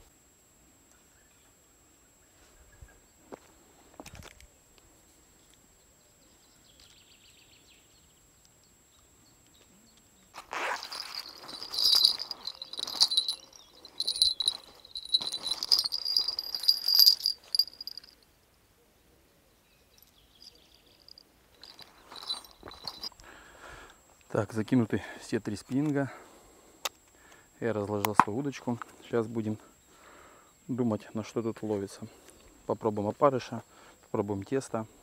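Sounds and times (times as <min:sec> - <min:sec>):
small bells jingling: 0:10.4 - 0:18.2, 0:20.0 - 0:23.2.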